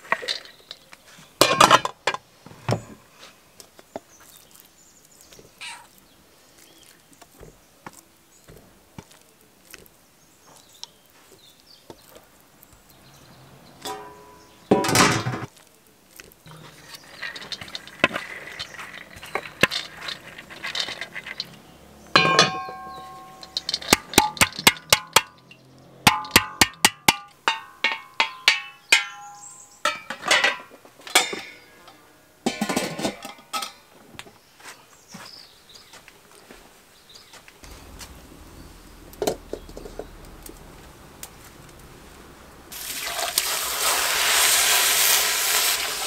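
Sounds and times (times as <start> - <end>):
metal pot and lid clinking: 1.4 - 2.2, 13.8 - 15.5, 17.0 - 31.6, 32.4 - 33.9
lid rattling on pot rim: 17.0 - 21.6.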